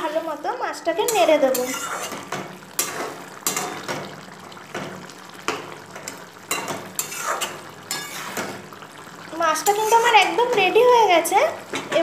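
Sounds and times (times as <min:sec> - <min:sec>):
metal spatula scraping metal pot: 0:01.0 - 0:03.9, 0:06.1 - 0:08.6, 0:09.6 - 0:10.7.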